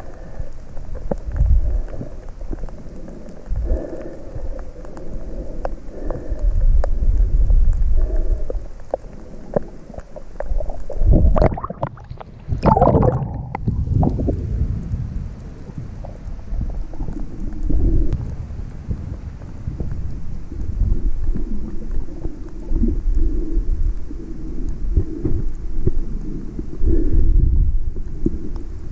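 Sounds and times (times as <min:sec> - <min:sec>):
splashing and bubbling: 0:00.0 - 0:14.7
clicks and crackles: 0:00.0 - 0:28.9
underwater water rumble: 0:00.0 - 0:28.9.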